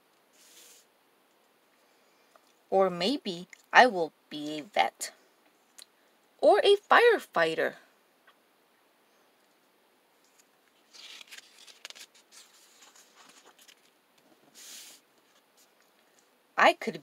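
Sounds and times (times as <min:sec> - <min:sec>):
hand sliding across paper: 0:00.3 - 0:00.9, 0:14.4 - 0:15.4
paper page rustling: 0:10.2 - 0:15.7.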